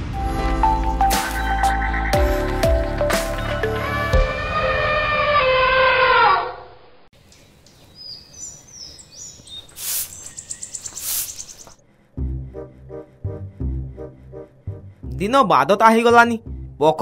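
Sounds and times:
cartoon birds chirping: 7.3 - 11.8.

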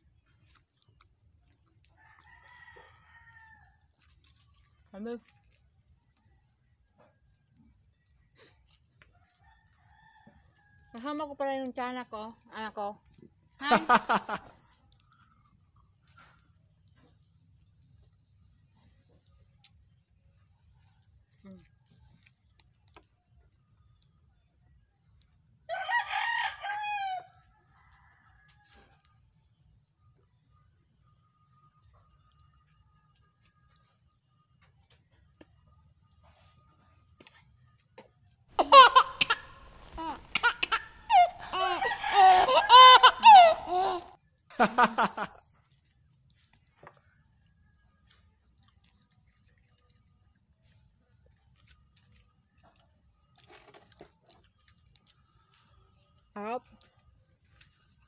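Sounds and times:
rooster crowing: 2.0 - 3.8, 25.7 - 29.0, 39.2 - 44.1
girl laughing and giggling: 13.6 - 14.5, 38.6 - 45.4.

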